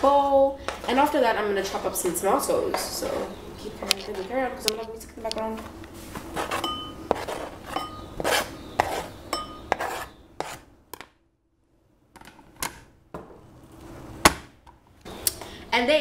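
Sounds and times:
knife scraping plastic cutting board: 6.3 - 10.7
bowl ringing: 6.5 - 8.2, 9.3 - 9.8.

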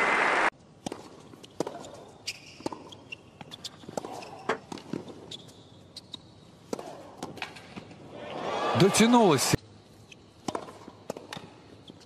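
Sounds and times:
racket striking tennis ball: 0.8 - 2.0, 10.4 - 11.4
tennis ball bouncing on hard court: 0.8 - 2.0, 2.6 - 5.2, 10.4 - 11.5.

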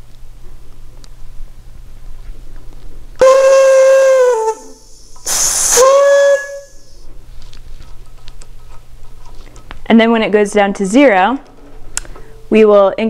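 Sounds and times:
gas venting with whistling hiss: 3.2 - 7.1.

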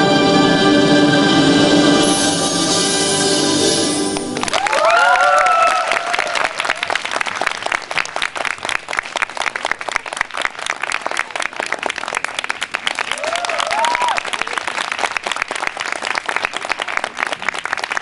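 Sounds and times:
orchestral music: 0.0 - 4.9
audience applause: 4.1 - 18.0
audience cheering: 4.3 - 7.6, 13.0 - 14.7.

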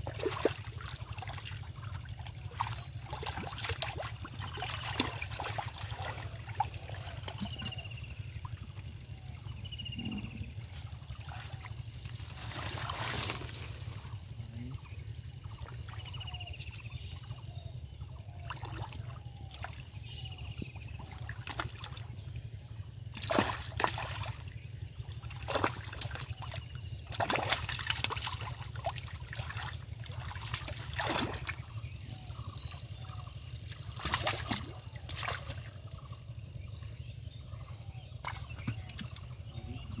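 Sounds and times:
hands splashing in muddy water: 0.0 - 7.8, 10.7 - 13.7, 23.2 - 24.4, 25.3 - 31.8, 33.6 - 35.7.

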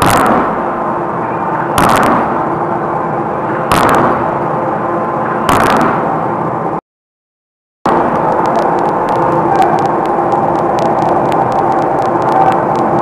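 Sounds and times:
machine running: 0.0 - 6.8, 7.9 - 13.0
forging hammer striking steel: 1.7 - 2.4, 3.7 - 4.4.

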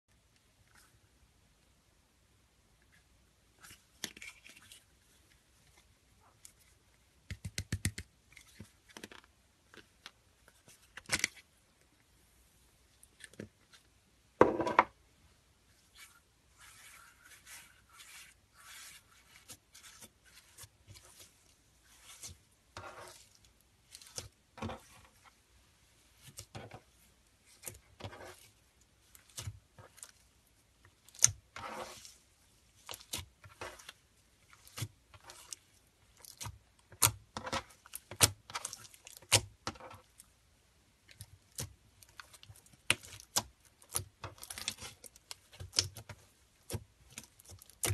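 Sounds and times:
slime kneaded by hand: 15.7 - 40.4, 41.0 - 47.9.

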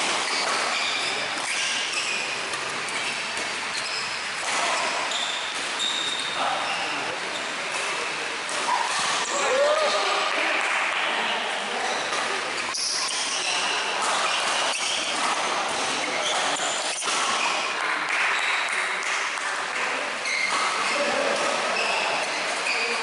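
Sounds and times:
rackets hitting shuttlecock: 0.0 - 3.8, 4.4 - 6.2, 12.1 - 21.6
shoes squeaking on court floor: 0.0 - 9.3, 11.7 - 19.1, 20.2 - 23.0
voices echoing in hall: 0.8 - 23.0.

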